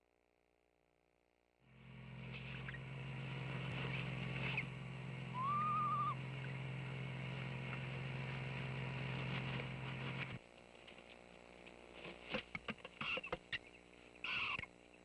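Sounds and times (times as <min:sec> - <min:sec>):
steady low hum: 0:01.6 - 0:15.0
quavering owl call: 0:02.2 - 0:07.3, 0:13.0 - 0:14.8.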